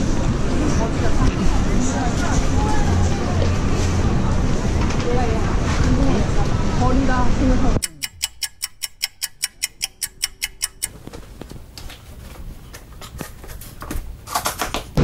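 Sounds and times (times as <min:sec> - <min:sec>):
rapid even ticking: 0:07.8 - 0:11.0.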